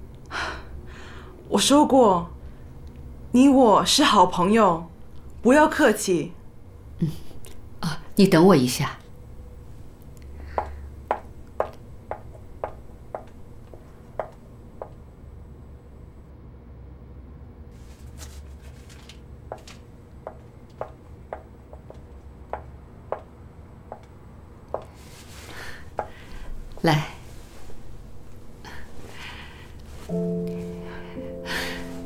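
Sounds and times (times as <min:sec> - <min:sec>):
low steady hum: 0:00.0 - 0:32.0
heeled footsteps on hard floor: 0:10.5 - 0:15.0, 0:19.5 - 0:23.3, 0:24.7 - 0:25.1, 0:25.9 - 0:26.2.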